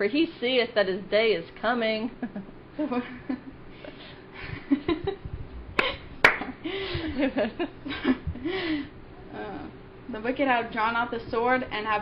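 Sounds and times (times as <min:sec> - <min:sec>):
women laughing: 0:02.1 - 0:08.9.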